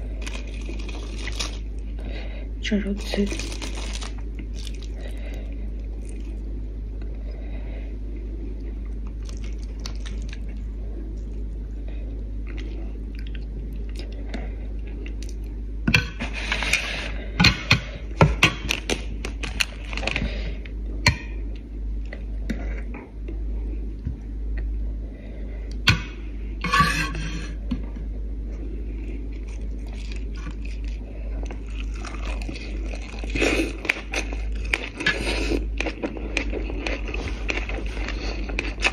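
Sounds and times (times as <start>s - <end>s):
chewing: 0.0s - 1.9s, 3.3s - 6.4s, 8.6s - 11.6s, 29.0s - 38.9s
steady low hum: 0.0s - 38.9s
clicks and scrapes on plate: 26.6s - 27.6s.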